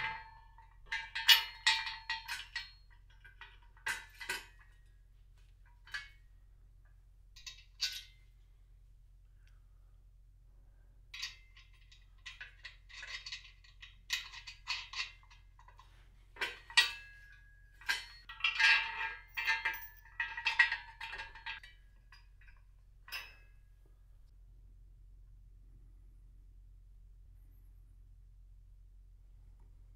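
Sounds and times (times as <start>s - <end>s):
bolts clinking against steel: 0.0s - 4.8s, 7.4s - 8.2s, 11.2s - 23.6s.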